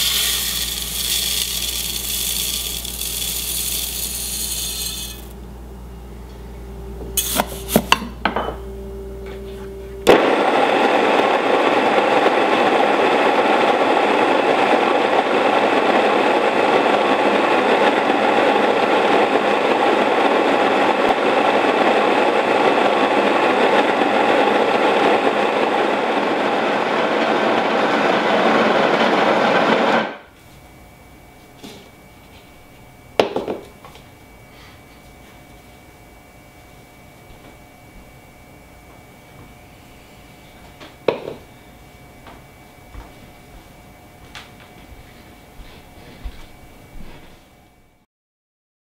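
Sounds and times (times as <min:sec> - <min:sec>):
stone grain mill grinding: 0:00.0 - 0:05.4, 0:07.2 - 0:08.0.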